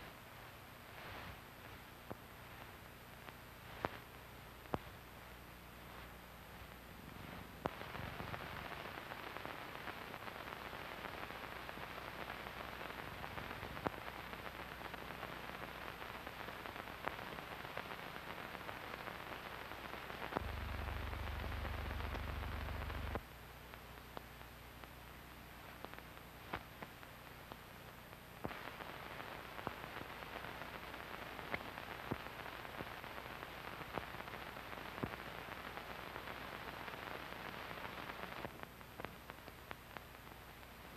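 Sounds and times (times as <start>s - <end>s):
film soundtrack hiss and crackle: 0.0s - 40.9s
low mains hum: 0.0s - 40.9s
louder low hum: 20.4s - 23.2s.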